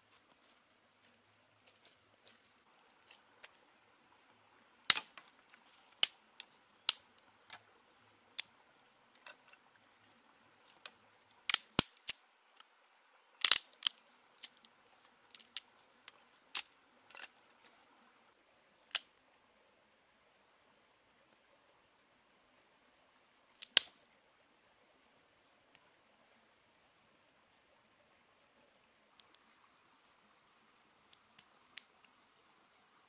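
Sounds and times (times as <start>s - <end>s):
dry sticks snapping: 4.9s - 7.6s, 9.2s - 9.6s, 10.7s - 12.7s, 13.4s - 14.7s, 15.3s - 17.3s, 23.6s - 24.0s.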